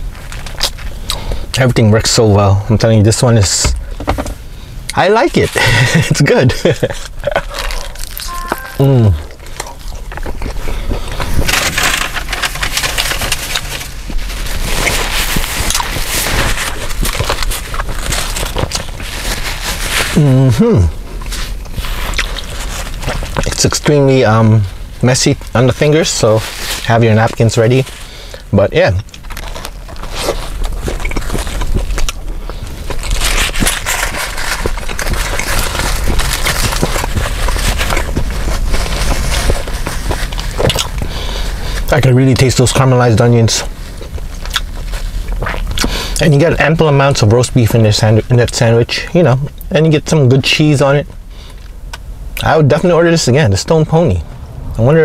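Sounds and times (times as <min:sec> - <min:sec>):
paper wrapper crinkling: 0:06.8 - 0:20.4, 0:29.1 - 0:41.1
crunchy chewing: 0:07.0 - 0:20.4, 0:21.2 - 0:23.5, 0:29.0 - 0:41.9, 0:43.6 - 0:46.3.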